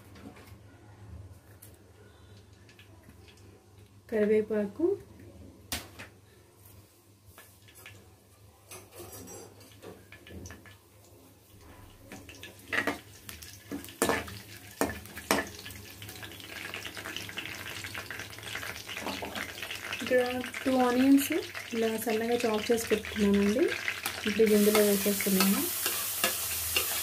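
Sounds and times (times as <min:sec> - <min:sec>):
oil sizzling: 0:09.7 - 0:27.0
seeds popping in hot oil: 0:12.1 - 0:27.0
spatula stirring: 0:23.8 - 0:27.0.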